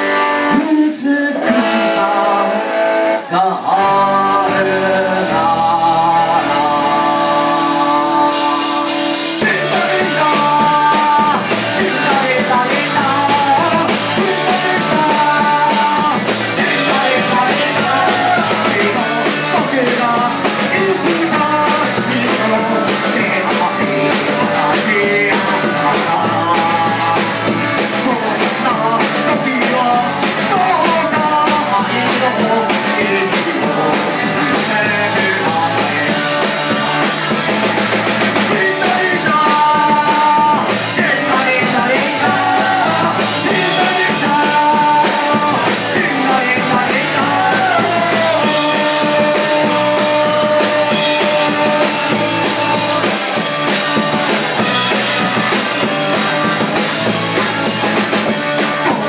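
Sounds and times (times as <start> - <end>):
rock band playing: 0.0 - 59.0.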